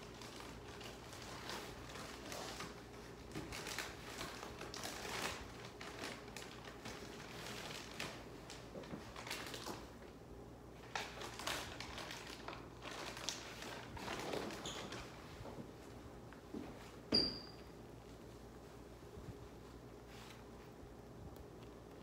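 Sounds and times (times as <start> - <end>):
crinkling handling noise: 0.0 - 17.1.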